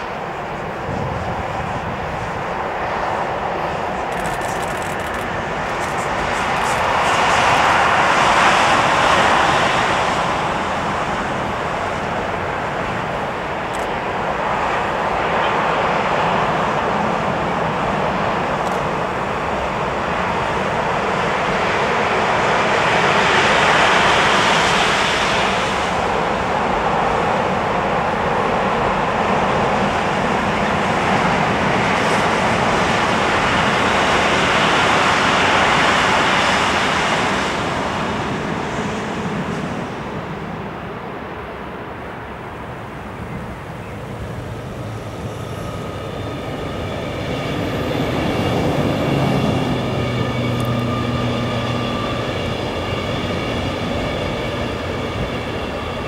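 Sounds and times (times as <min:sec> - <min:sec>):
train wheels rushing on rails: 0:00.0 - 0:56.0.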